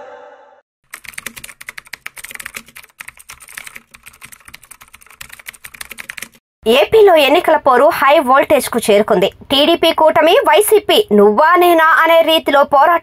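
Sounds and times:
song: 0:00.0 - 0:00.6
computer keyboard typing: 0:00.9 - 0:06.4.

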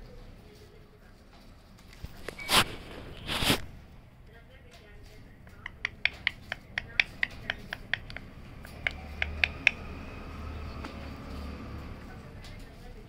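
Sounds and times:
parakeet beak clicking: 0:05.4 - 0:10.9.

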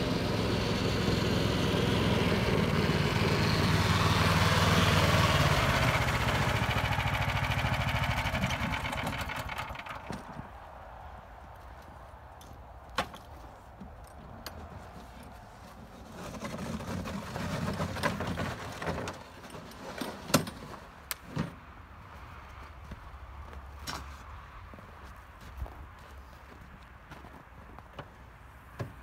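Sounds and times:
rough scraping: 0:14.7 - 0:21.6
plastic sled knocks and clanks: 0:15.7 - 0:21.6.

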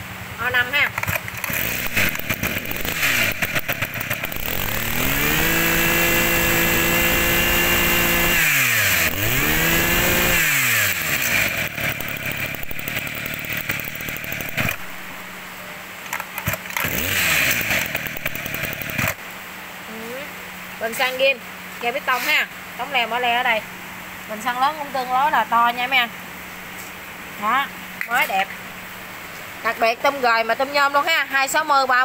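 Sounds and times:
brush cutter engine revving: 0:00.8 - 0:15.2, 0:16.1 - 0:19.2.

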